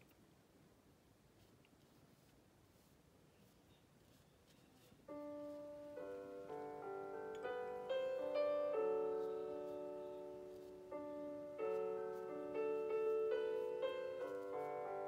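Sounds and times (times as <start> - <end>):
gentle piano music: 4.5 - 15.0.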